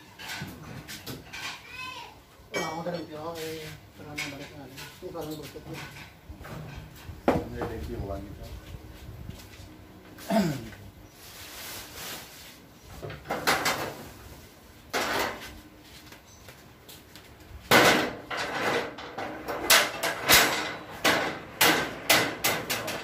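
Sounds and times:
tools clanking on a wheel: 0.0 - 1.7, 4.0 - 7.9, 14.9 - 15.6, 17.6 - 23.0.

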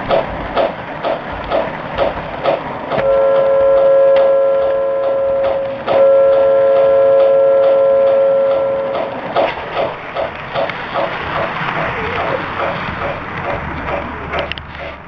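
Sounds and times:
wheels clicking over track joints: 0.0 - 15.0
model train whistle: 3.0 - 9.2.

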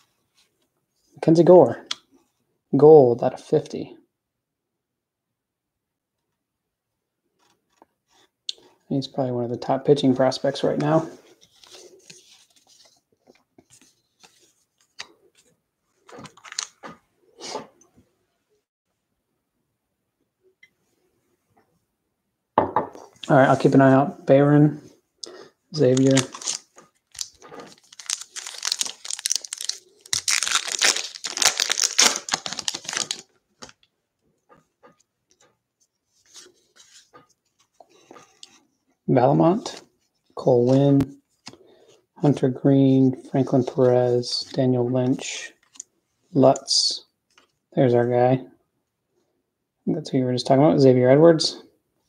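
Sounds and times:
cards sliding: 10.8 - 17.6, 25.8 - 33.8
cards clicking as flipped: 16.1 - 17.0
foil wrapper tearing and crinkling: 25.8 - 33.8.

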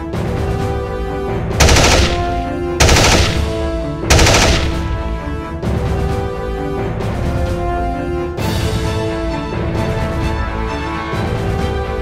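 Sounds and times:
background music: 0.0 - 12.0
automatic gunfire sound effect: 1.6 - 5.1.

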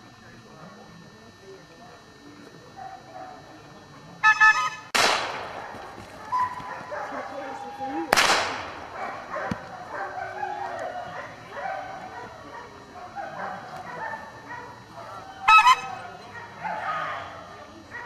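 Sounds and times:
dog barking: 2.8 - 3.4, 5.6 - 7.6, 8.9 - 18.0.

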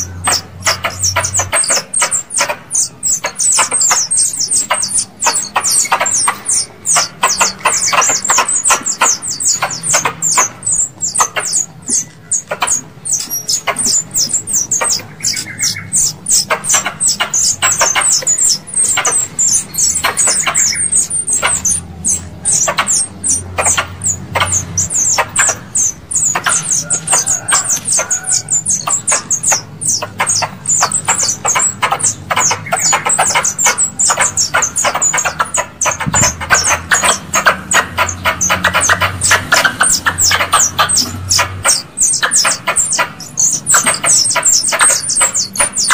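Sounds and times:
squirrel lure call chirps: 0.0 - 45.9.

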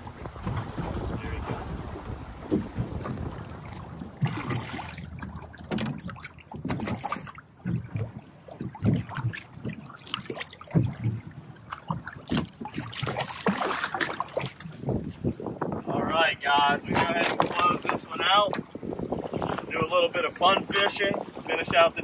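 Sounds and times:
water slapping against hull: 0.0 - 22.0
fish splashing at surface: 3.0 - 11.2, 11.8 - 14.6.

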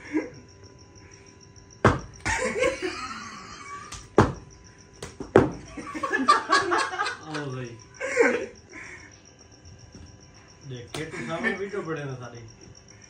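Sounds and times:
men laughing: 0.0 - 0.5, 2.2 - 4.1, 5.6 - 9.1, 11.0 - 12.1.

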